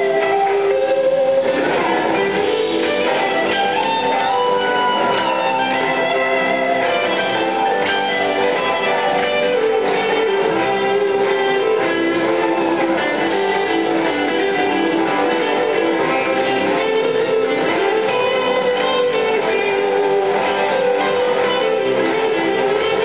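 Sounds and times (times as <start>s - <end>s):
electric guitar lead melody: 0.0s - 23.0s
live rock band playing: 0.0s - 23.0s.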